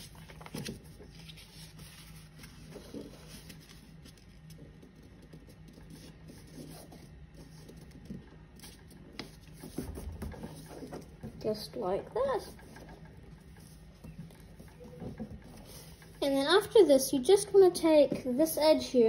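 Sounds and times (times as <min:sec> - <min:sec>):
paper rustling and folding: 0:00.0 - 0:11.5, 0:12.4 - 0:16.2.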